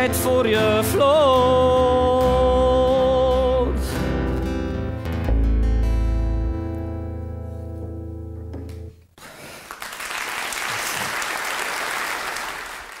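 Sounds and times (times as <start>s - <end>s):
acoustic guitar and double bass chord: 0.2s - 8.8s
audience applause: 9.2s - 13.0s.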